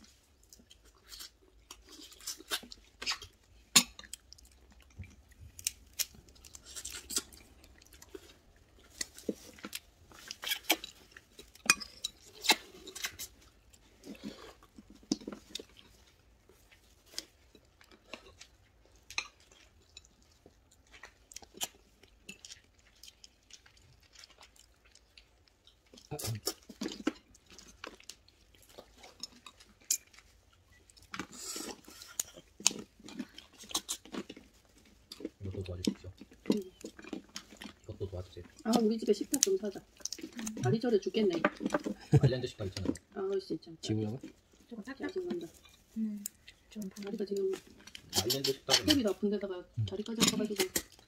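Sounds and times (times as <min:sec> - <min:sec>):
chewing: 0:00.0 - 0:51.0
crab shell cracking: 0:05.5 - 0:07.6
utensils clinking on dishes: 0:48.1 - 0:49.1.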